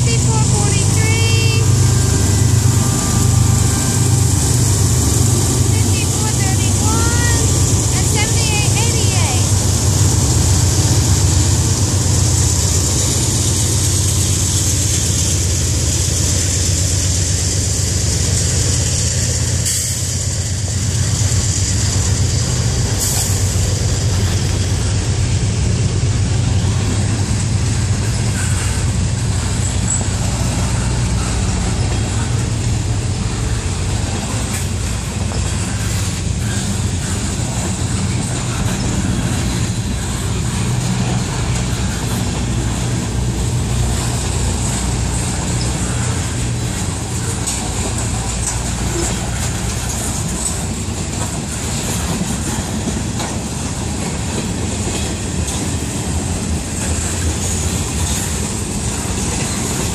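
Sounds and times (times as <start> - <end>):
freight train wheels rumbling: 0.0 - 59.9.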